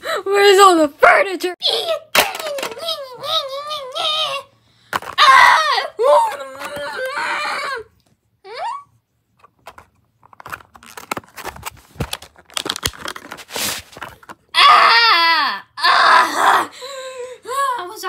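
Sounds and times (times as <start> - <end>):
plastic toys clicking together: 2.2 - 3.0
high vocal cries: 5.2 - 7.9.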